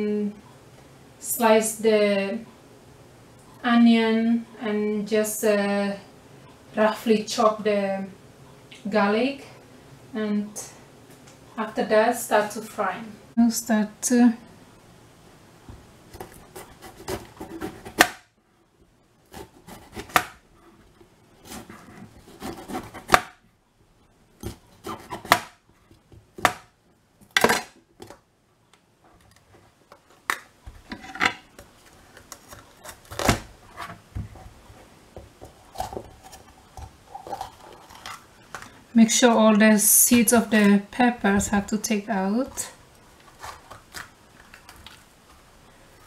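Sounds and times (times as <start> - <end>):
knife crunching through pepper: 43.2 - 45.0.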